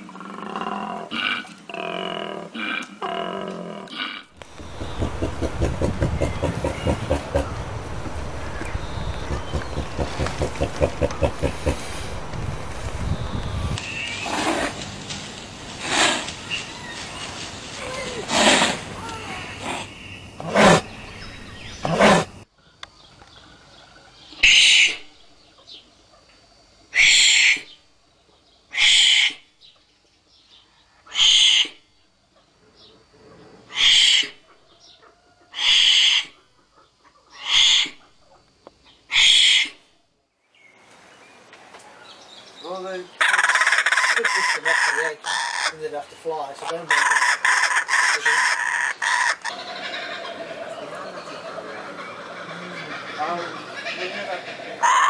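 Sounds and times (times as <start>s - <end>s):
kookaburras cackling: 4.0s - 12.7s, 13.6s - 22.4s, 24.4s - 25.2s, 33.7s - 38.4s, 39.1s - 39.9s, 43.2s - 45.9s, 46.6s - 55.0s
wombat hissing huffs: 14.2s - 14.8s, 15.7s - 16.5s, 18.0s - 21.0s.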